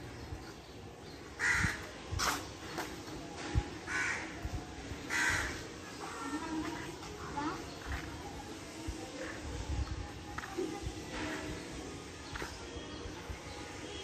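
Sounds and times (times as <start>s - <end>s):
crow cawing: 1.4s - 1.7s, 3.9s - 4.3s, 5.1s - 5.6s.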